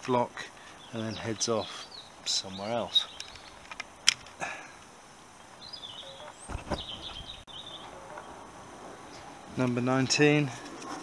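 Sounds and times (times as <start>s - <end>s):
bird chirping: 0.7s - 3.7s, 5.4s - 9.2s.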